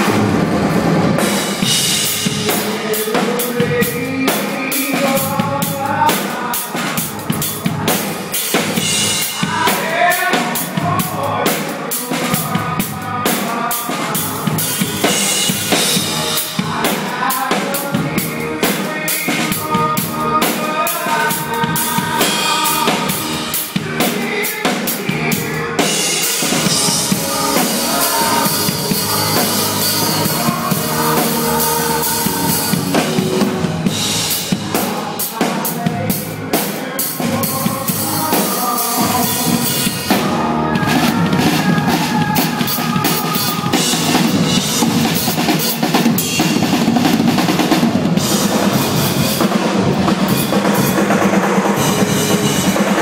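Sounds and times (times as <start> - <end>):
drum kit solo: 0.0 - 53.0
sustained pitched notes: 25.3 - 34.7.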